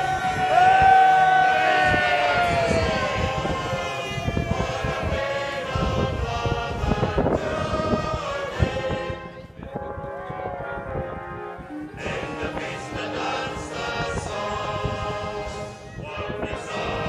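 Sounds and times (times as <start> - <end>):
microphone rumbling: 0.0 - 17.0
crowd singing in chorus: 1.2 - 9.6, 11.9 - 17.0.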